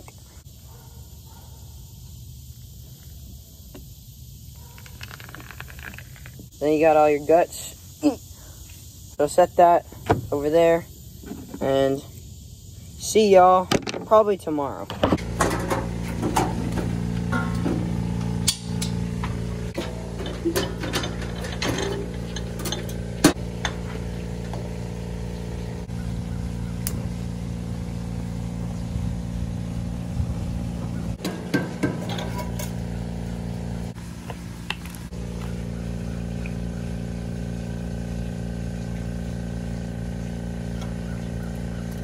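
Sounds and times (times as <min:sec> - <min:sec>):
steady low hum: 0:14.9 - 0:42.0
metal clicks and knocks of grill: 0:19.8 - 0:23.0.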